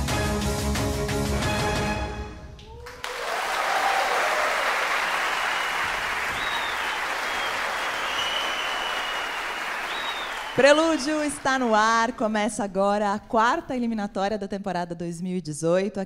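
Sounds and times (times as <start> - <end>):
music: 0.0 - 2.7
audience applause: 2.8 - 12.1
whistles: 5.1 - 11.3.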